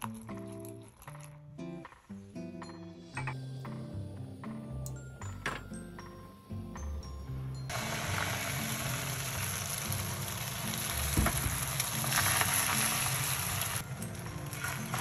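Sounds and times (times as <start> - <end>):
food sizzling in a pan: 7.7 - 15.0.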